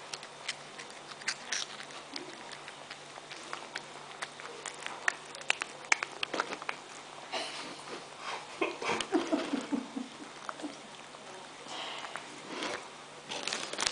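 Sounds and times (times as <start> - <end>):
cat crunching snacks: 0.0 - 7.2, 9.0 - 13.9
cat licking lips: 0.1 - 7.0.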